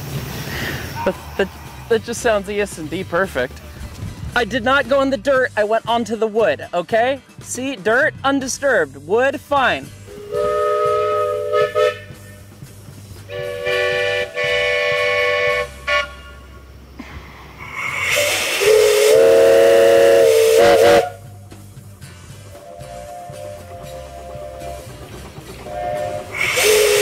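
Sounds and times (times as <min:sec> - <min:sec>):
steam hissing: 0:00.0 - 0:03.0, 0:09.9 - 0:27.0
steam locomotive chime whistle: 0:10.0 - 0:12.6, 0:13.3 - 0:16.8, 0:18.0 - 0:21.6, 0:22.3 - 0:27.0.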